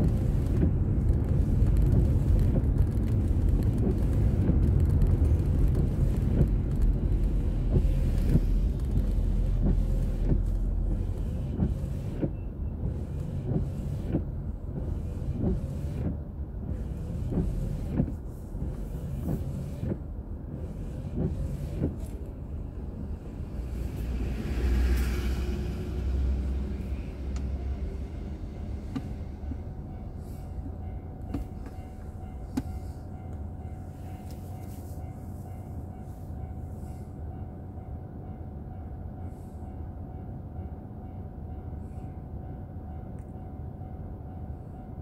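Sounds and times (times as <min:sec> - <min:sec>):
road and engine rumble: 0:00.0 - 0:45.0
passing vehicle rushing: 0:21.3 - 0:30.8.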